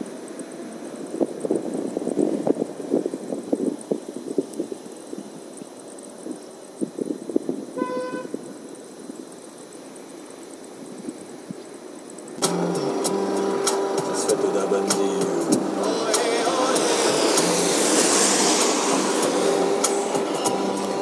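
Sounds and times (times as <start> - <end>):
vehicle horn toot: 7.8 - 8.4.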